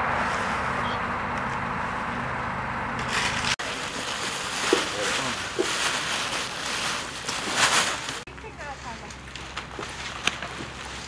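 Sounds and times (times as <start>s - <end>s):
plastic garbage bags rustling: 3.0s - 11.0s.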